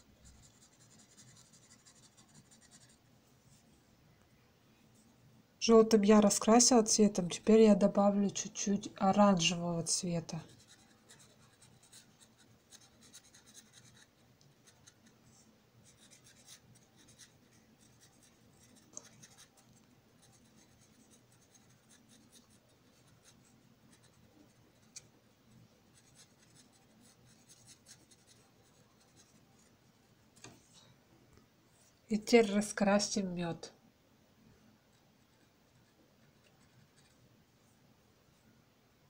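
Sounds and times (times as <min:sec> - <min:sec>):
felt-tip pen scratching paper: 0:00.2 - 0:03.0, 0:10.4 - 0:15.1, 0:15.8 - 0:25.1, 0:25.9 - 0:29.4.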